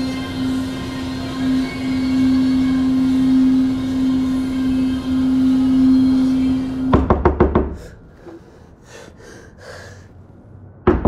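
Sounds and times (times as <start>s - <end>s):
steady low drone: 0.0s - 7.1s.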